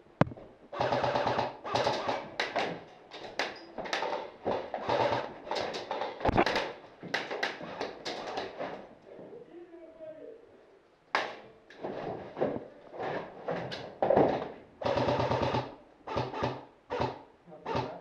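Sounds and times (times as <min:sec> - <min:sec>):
airsoft rifles firing: 0:00.2 - 0:02.8, 0:03.4 - 0:07.4, 0:14.8 - 0:18.0.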